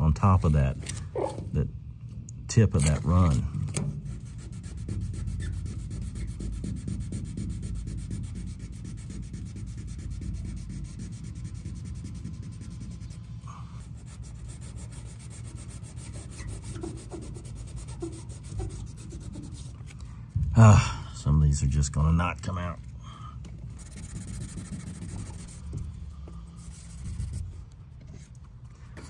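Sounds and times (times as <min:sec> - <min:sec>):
wet sandpaper rubbing paint: 0:04.1 - 0:19.9, 0:23.8 - 0:25.8, 0:26.5 - 0:27.6.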